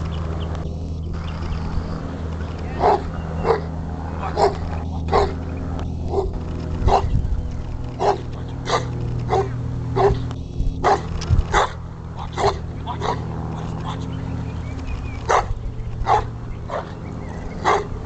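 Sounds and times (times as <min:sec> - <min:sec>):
steady low hum: 0:00.0 - 0:18.0
dog barking: 0:02.8 - 0:05.3, 0:08.0 - 0:10.2, 0:10.8 - 0:13.2, 0:15.3 - 0:16.9, 0:17.6 - 0:17.9.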